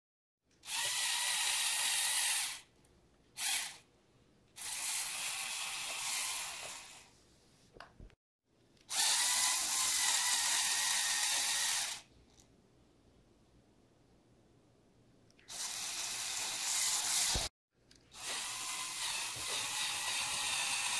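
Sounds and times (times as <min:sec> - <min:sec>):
toy motor whirring through gears: 0:00.6 - 0:02.7, 0:03.4 - 0:03.8, 0:04.6 - 0:07.1, 0:08.8 - 0:12.1, 0:15.5 - 0:17.5, 0:18.1 - 0:20.9.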